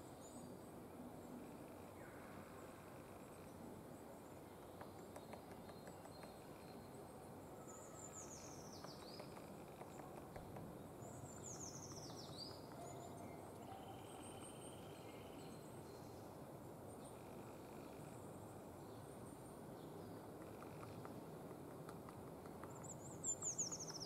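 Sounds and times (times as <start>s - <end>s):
woodpecker tapping on bark: 4.6s - 6.5s, 8.8s - 10.9s, 20.3s - 24.0s.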